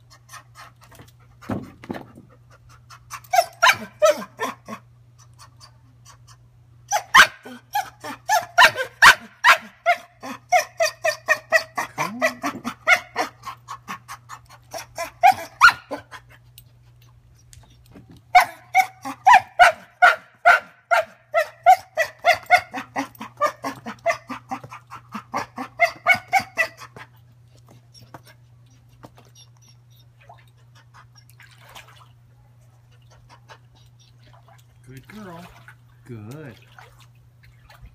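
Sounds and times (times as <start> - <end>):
young dog barking: 3.3 - 4.8, 6.9 - 13.4, 14.7 - 16.2, 18.3 - 27.0.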